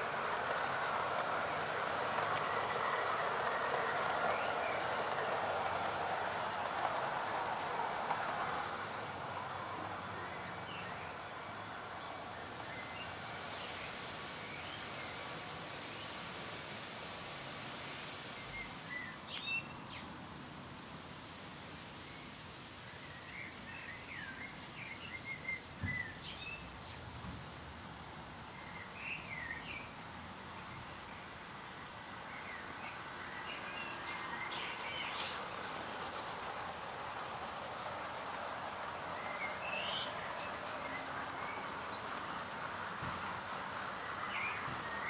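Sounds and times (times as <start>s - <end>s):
model train wheels rumbling: 0.0s - 11.0s, 32.7s - 45.0s
small birds chirping: 32.3s - 45.0s.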